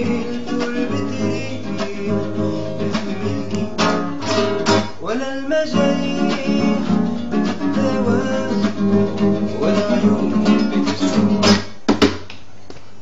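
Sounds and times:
classical guitar strummed and plucked: 0:00.0 - 0:11.8.

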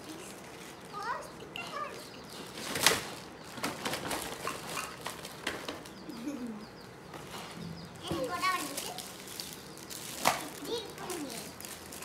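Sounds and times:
plastic packaging crinkling: 0:02.4 - 0:05.9, 0:08.3 - 0:12.0.

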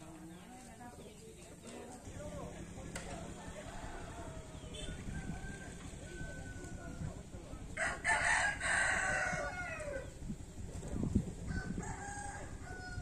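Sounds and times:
rooster crowing: 0:03.3 - 0:07.2, 0:07.8 - 0:10.1, 0:11.5 - 0:13.0.

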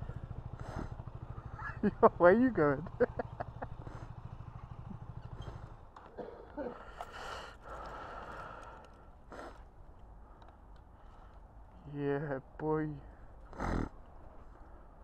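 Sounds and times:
motorcycle engine idling: 0:00.0 - 0:11.8.

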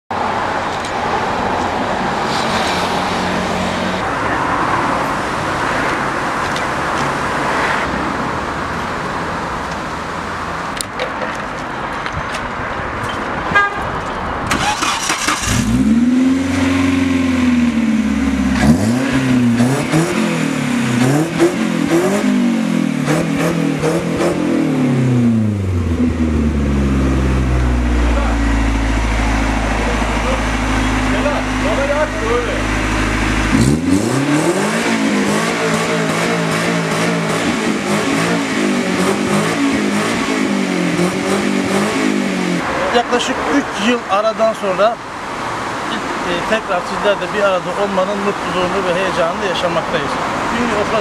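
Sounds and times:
outdoor street noise: 0:00.1 - 0:51.0
truck engine revving: 0:14.5 - 0:43.9.

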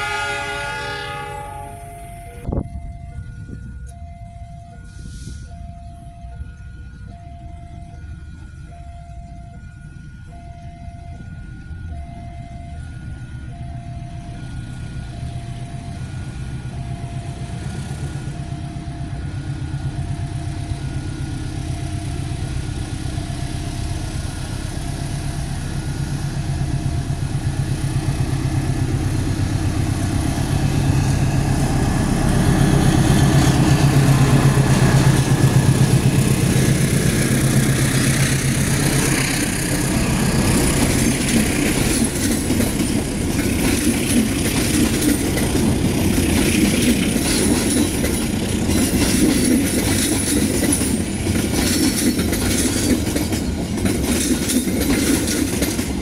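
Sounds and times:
level-crossing warning beeps: 0:00.0 - 0:56.0
locomotive engine hum: 0:00.0 - 0:56.0
train wheels rolling: 0:19.1 - 0:56.0.

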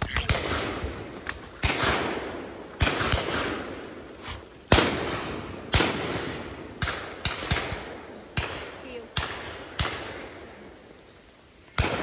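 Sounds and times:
shotgun shots with echo: 0:00.1 - 0:00.8, 0:01.6 - 0:03.7, 0:04.7 - 0:10.3, 0:11.8 - 0:12.0
distant shotgun shots: 0:00.1 - 0:01.0, 0:01.6 - 0:03.8, 0:04.7 - 0:10.3, 0:11.8 - 0:12.0.

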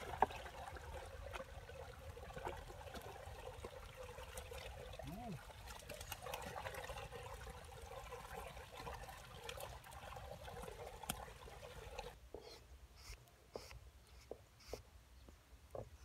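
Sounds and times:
muddy water trickling and sloshing: 0:00.0 - 0:12.4.

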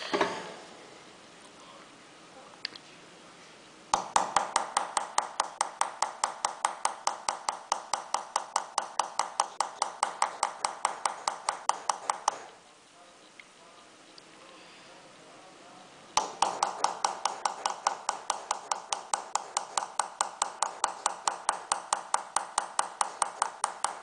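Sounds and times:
hammer tapping metal chisel: 0:04.0 - 0:12.6, 0:16.2 - 0:24.0.

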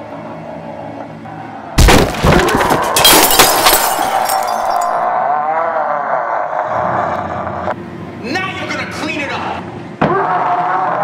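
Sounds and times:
glass breaking and clattering: 0:01.8 - 0:05.1
man snarling roar: 0:05.0 - 0:07.1.

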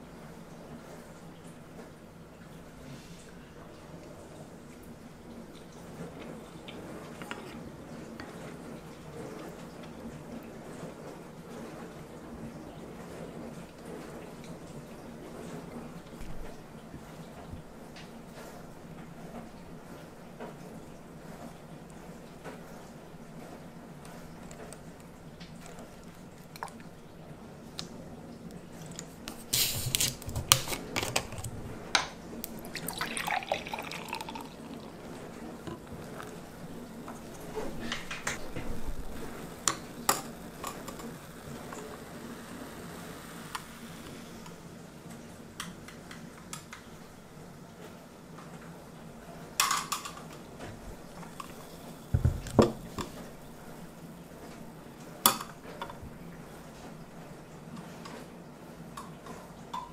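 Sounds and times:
gas hissing from bottle: 0:29.4 - 0:30.2, 0:35.8 - 0:44.6
soda pouring into glass: 0:32.4 - 0:44.5.

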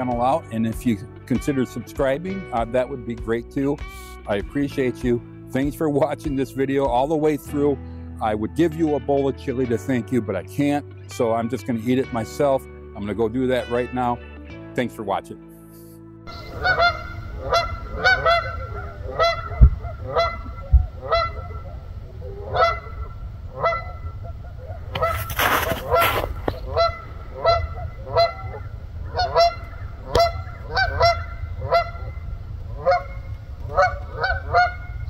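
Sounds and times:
geese honking: 0:16.3 - 0:35.0
low steady rumble: 0:16.3 - 0:35.0.

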